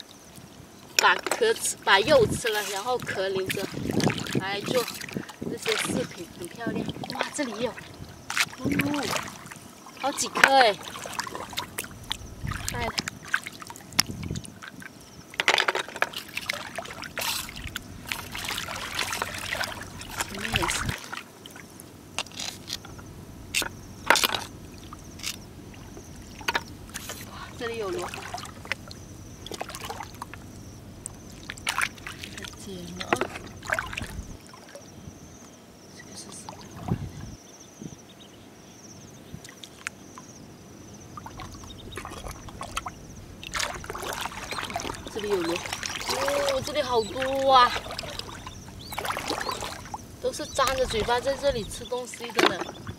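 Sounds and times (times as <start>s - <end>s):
seawater sloshing and splashing: 0.0s - 35.4s, 36.3s - 37.4s, 39.4s - 52.9s.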